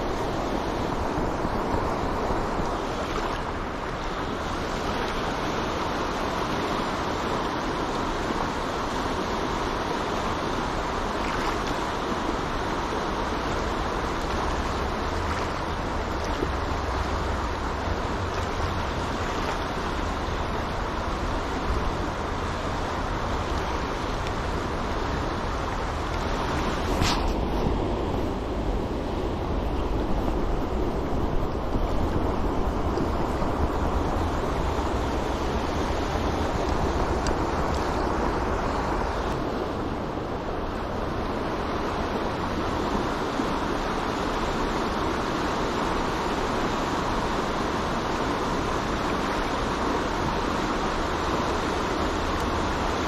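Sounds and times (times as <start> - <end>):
river current rushing: 0.0 - 53.0
wind rumble on microphone: 0.0 - 53.0.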